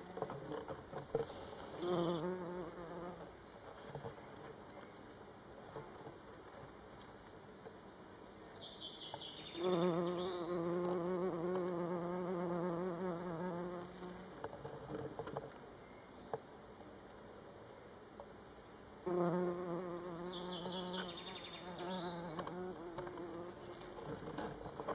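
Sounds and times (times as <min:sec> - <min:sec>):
bumblebee buzzing: 0:01.7 - 0:03.3, 0:09.5 - 0:14.4, 0:19.0 - 0:24.6.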